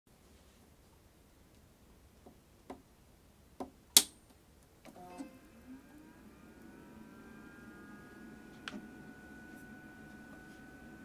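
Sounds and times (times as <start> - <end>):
computer low hum: 4.7 - 11.0
drive and fan whine rising: 4.8 - 11.0.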